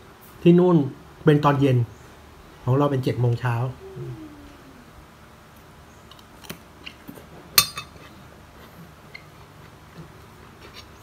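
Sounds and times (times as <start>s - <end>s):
cutlery clinking against a plate: 7.5s - 8.2s.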